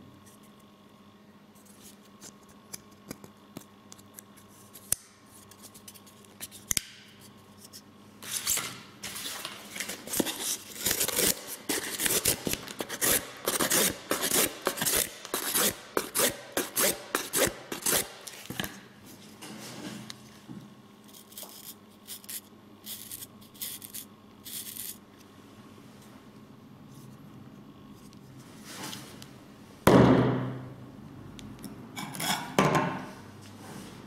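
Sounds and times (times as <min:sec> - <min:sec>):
knife sawing through cardboard: 0:10.3 - 0:18.2.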